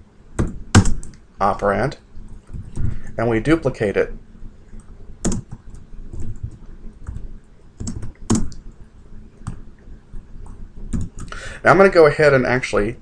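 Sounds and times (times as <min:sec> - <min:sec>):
typing on computer keyboard: 0:05.2 - 0:08.6.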